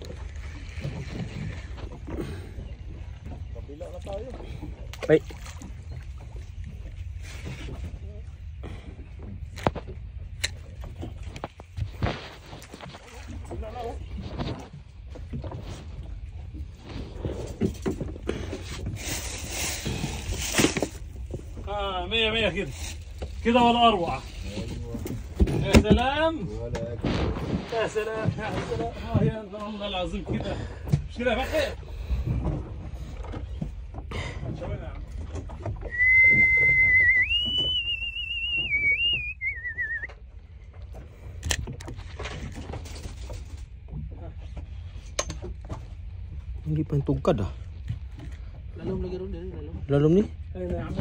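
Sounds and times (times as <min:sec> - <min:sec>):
boat engine low rumble: 0:00.0 - 0:51.0
water slapping against hull: 0:00.0 - 0:51.0
low rumble: 0:26.3 - 0:29.5
person whistling a tune: 0:35.9 - 0:40.1.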